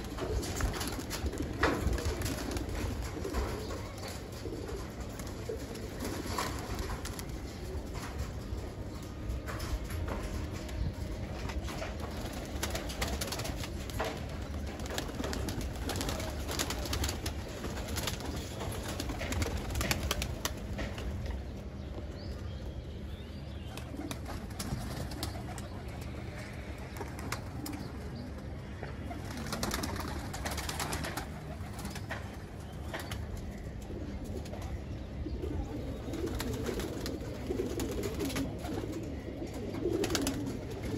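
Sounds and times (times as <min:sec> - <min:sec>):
pigeons cooing: 0:00.0 - 0:21.8, 0:32.9 - 0:40.9.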